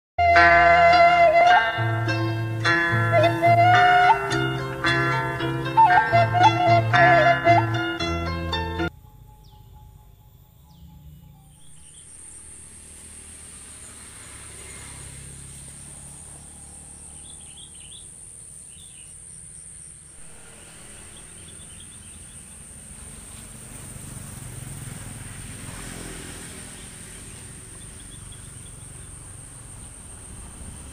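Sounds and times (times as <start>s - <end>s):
high-pitched insect drone: 8.9s - 30.9s
bird chirps: 9.2s - 12.9s, 15.9s - 20.2s, 20.8s - 22.8s, 27.7s - 30.0s.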